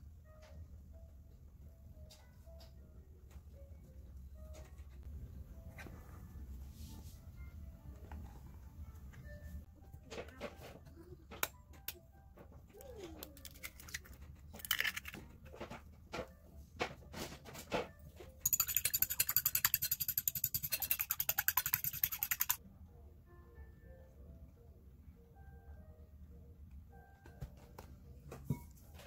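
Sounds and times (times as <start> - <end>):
bowl and utensil taps: 18.4 - 22.6.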